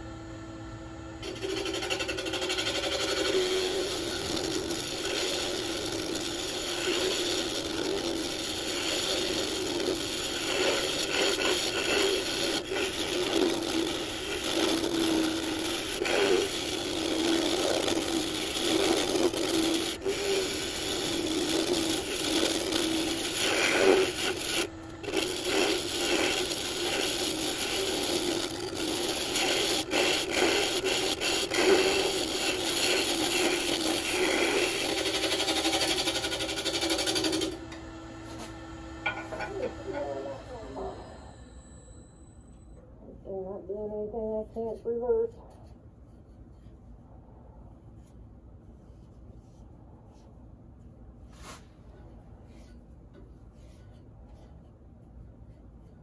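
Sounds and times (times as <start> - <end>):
lathe humming: 0.0 - 42.7
tool scraping spinning wood: 1.2 - 42.6, 44.4 - 46.9, 51.3 - 56.0.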